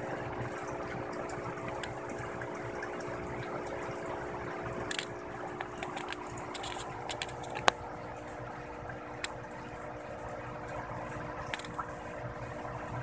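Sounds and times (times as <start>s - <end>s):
machine hum with tones: 0.0s - 13.0s
small clicks: 4.9s - 7.8s, 11.5s - 11.8s.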